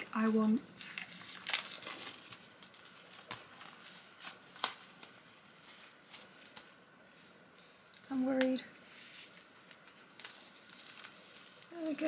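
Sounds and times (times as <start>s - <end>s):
plastic shrink-wrap crackling: 0.0s - 6.7s, 9.2s - 12.0s.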